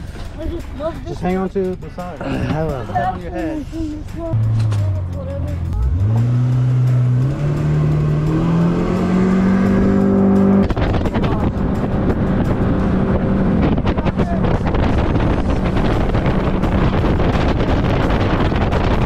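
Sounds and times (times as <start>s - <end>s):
boat engine revving: 4.3s - 19.0s
rush of wind and water: 10.6s - 19.0s.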